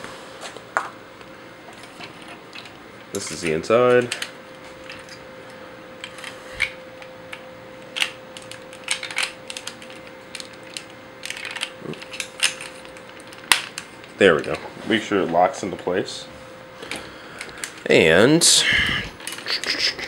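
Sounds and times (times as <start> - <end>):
faint steady hum: 0.0 - 20.0
toy parts clicking and clacking: 8.0 - 13.8.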